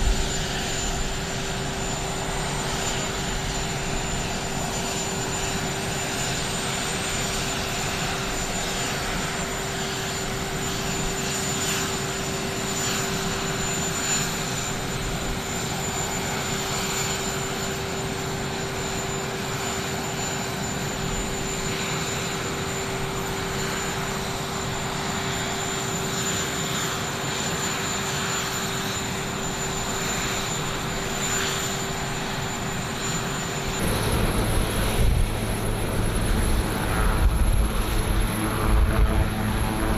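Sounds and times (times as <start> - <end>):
helicopter rotor and engine: 0.0 - 39.9
turbine engines idling: 30.2 - 39.9.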